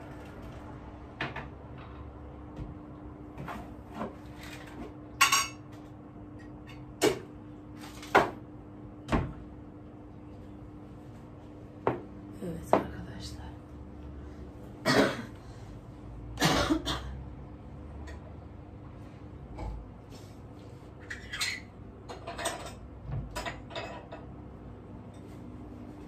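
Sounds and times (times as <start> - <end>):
dishes clinking on table: 5.2 - 5.7, 21.2 - 24.3.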